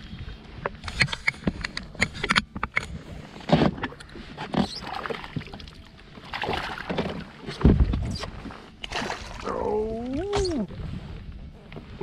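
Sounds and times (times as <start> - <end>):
fish splashing in water: 6.2 - 7.3, 8.8 - 10.5.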